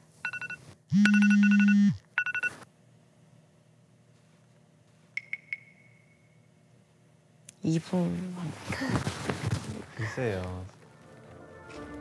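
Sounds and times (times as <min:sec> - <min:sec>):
phone alarm beeping: 0:00.2 - 0:02.6.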